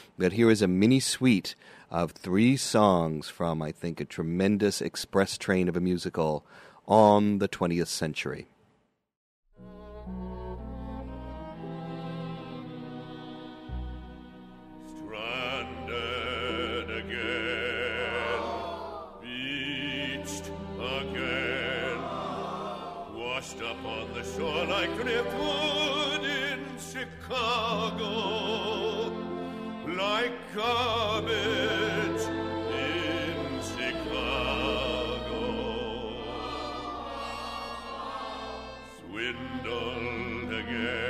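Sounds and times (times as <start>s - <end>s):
orchestra playing: 9.6s - 41.0s
operatic singing: 11.2s - 41.0s.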